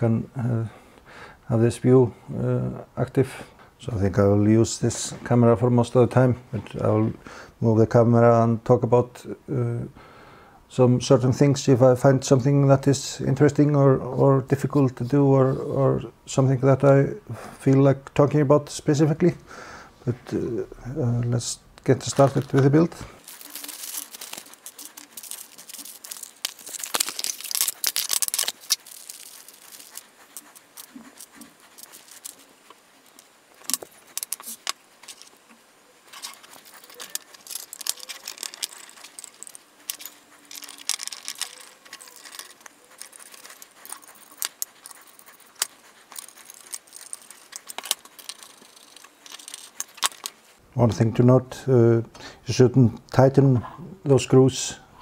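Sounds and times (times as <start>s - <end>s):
handling noise: 21.1s - 50.6s
metal screws clinking: 23.2s - 32.5s, 33.1s - 35.4s, 36.1s - 50.4s.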